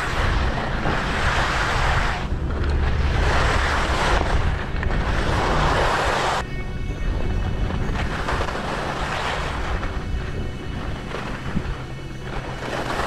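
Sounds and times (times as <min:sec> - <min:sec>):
skis scraping on hard snow: 0:00.0 - 0:06.5, 0:07.1 - 0:13.0
wind rumbling on microphone: 0:00.0 - 0:13.0.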